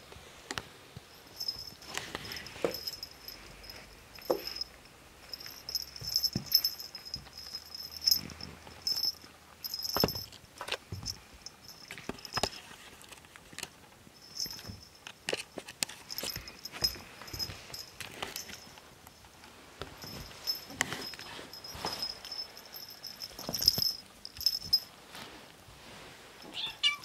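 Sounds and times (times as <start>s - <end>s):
kittens scuffling on carpet: 0.7s - 13.6s, 14.3s - 27.0s
high jingle: 1.1s - 10.4s, 16.1s - 18.8s, 20.0s - 25.0s.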